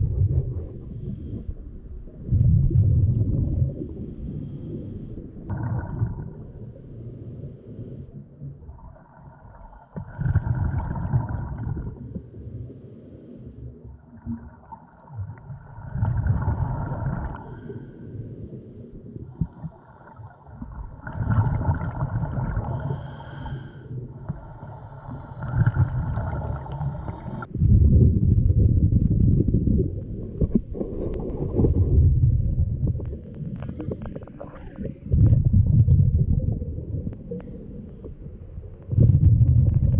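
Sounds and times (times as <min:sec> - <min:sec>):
muffled underwater rumble: 0:00.0 - 0:39.9.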